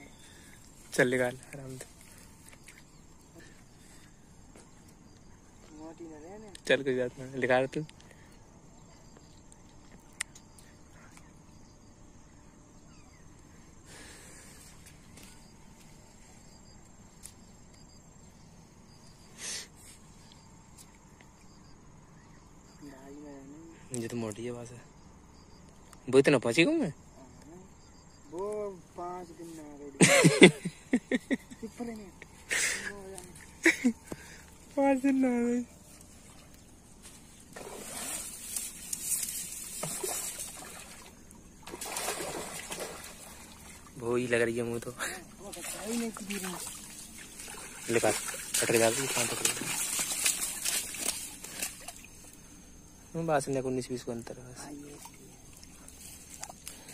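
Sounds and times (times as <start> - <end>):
crickets chirring: 0.0 - 56.9
soft hissy noises: 35.7 - 41.1
fish thrashing and splashing water: 37.3 - 44.0, 45.3 - 52.2.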